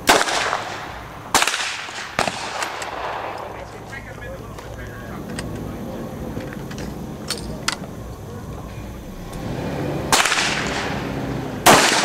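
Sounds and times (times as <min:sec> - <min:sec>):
loud gunshot echoing: 0:00.0 - 0:03.8, 0:10.1 - 0:11.0, 0:11.6 - 0:12.0.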